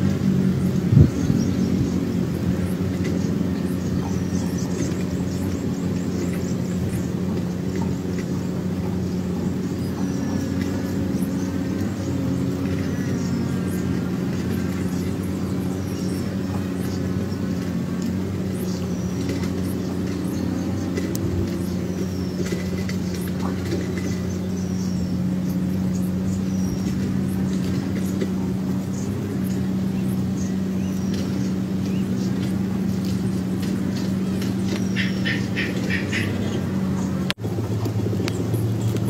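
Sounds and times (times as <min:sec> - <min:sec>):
low mechanical hum: 0:00.0 - 0:39.0.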